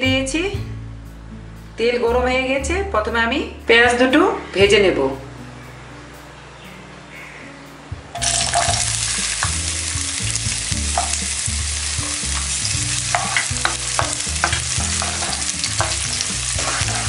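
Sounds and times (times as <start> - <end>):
onion sizzling in hot oil: 8.2 - 17.0
spatula scraping a pan: 12.9 - 17.0.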